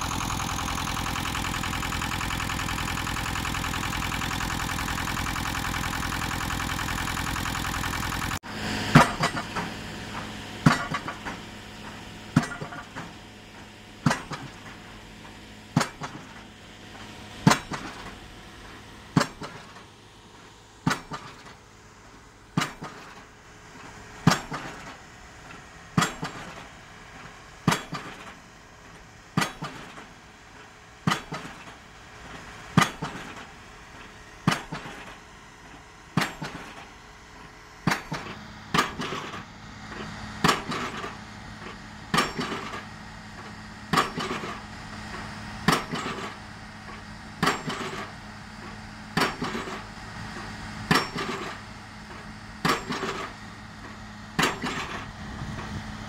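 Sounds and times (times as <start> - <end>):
pile hammer striking concrete pile: 26.0 - 26.5, 27.7 - 28.3, 29.4 - 30.0, 31.0 - 31.7, 32.8 - 33.4, 34.5 - 35.1, 36.2 - 36.9, 37.9 - 39.4, 42.1 - 42.8, 45.7 - 46.3, 47.4 - 48.1, 49.2 - 49.8, 50.9 - 51.6, 52.6 - 53.3, 54.4 - 55.0.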